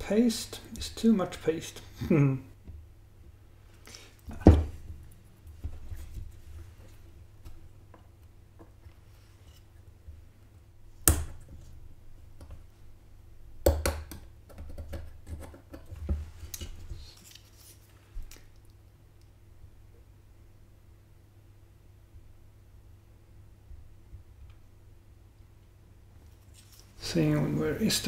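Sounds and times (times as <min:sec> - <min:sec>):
small clicks and scrapes of parts: 0:08.7 - 0:09.8, 0:15.2 - 0:18.8, 0:26.2 - 0:27.0.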